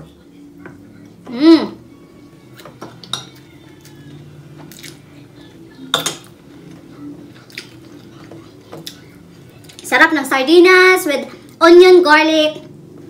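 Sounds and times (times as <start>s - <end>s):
ceramic dishes clinking: 2.7s - 3.4s, 5.9s - 6.3s.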